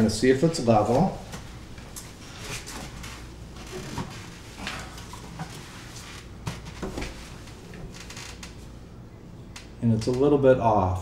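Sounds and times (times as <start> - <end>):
soft knocks and rustles: 0.8 - 8.6.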